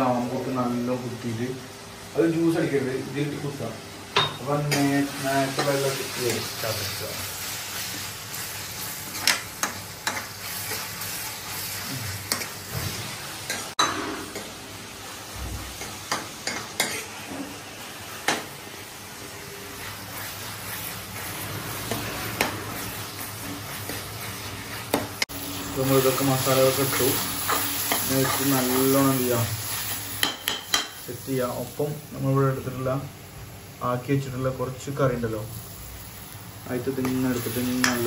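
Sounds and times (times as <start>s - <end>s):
vegetables sizzling in oil: 0.0s - 38.0s
metal ladle scraping pan: 20.2s - 24.3s.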